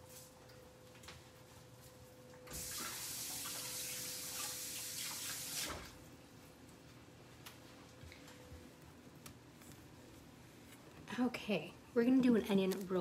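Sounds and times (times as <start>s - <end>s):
faucet water running into sink: 2.5s - 6.0s.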